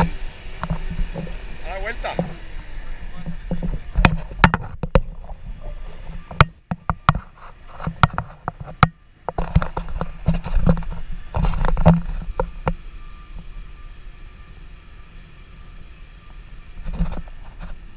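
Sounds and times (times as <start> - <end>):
wind rumble on microphone: 0.0 - 17.9.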